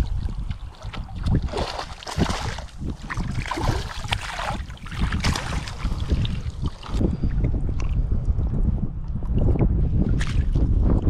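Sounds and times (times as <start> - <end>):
wind rumble on microphone: 0.0 - 11.0
water sloshing in landing net: 0.3 - 7.0
fish thrashing and splashing: 0.4 - 7.0.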